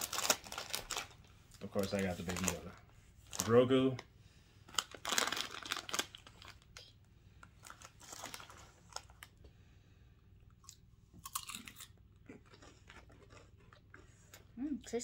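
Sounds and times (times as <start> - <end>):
people crunching chips: 0.0 - 2.7, 4.7 - 6.8, 7.6 - 9.4, 10.5 - 14.5
foil chip bag crinkling: 0.0 - 4.0, 4.7 - 6.8, 7.6 - 9.3.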